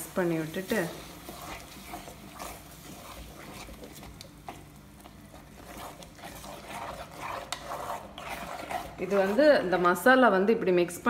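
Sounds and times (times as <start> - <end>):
faint sizzle: 0.0 - 8.0
metal spoon scraping clay pot: 5.5 - 9.9.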